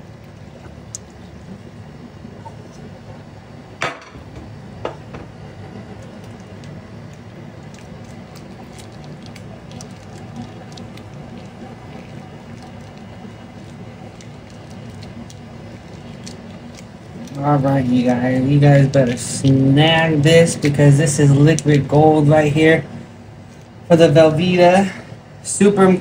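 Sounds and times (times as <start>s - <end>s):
steady low hum: 0.0s - 26.0s
foil pouch crinkling: 5.9s - 19.2s.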